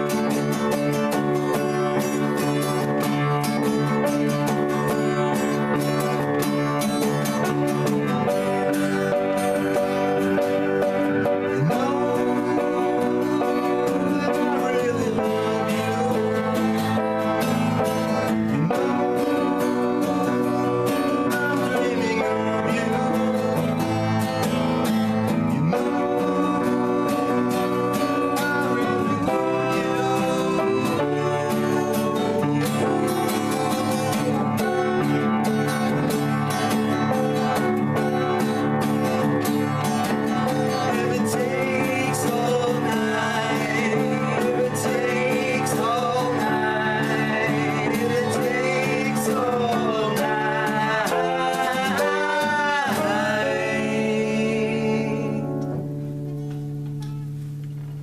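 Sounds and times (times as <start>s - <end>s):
acoustic guitar strumming: 0.0s - 58.0s
man and woman singing: 11.3s - 17.2s, 18.8s - 24.2s, 25.6s - 34.8s, 40.5s - 55.8s.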